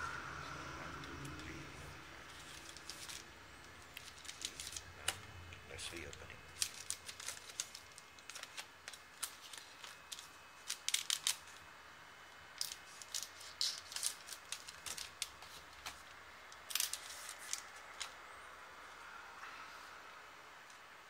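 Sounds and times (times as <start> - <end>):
foil packs crinkling: 2.3 - 5.2, 5.8 - 11.6, 12.5 - 18.2.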